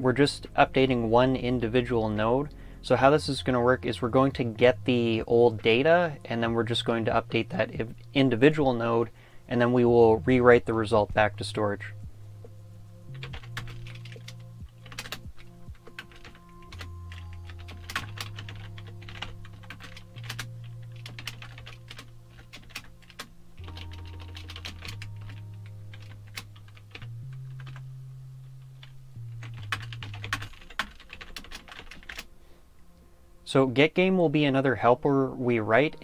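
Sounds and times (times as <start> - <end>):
keyboard typing clicks: 13.2 - 27.8, 28.8 - 32.3.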